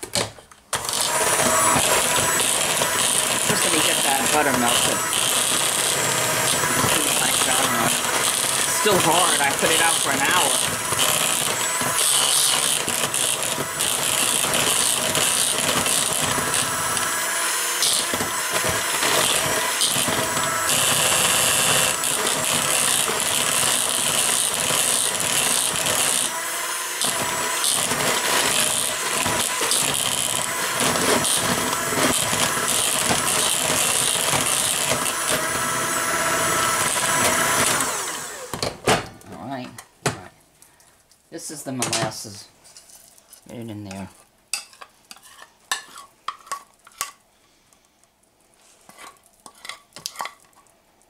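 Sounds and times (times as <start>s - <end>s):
electric hand mixer churning batter: 0.8s - 38.6s.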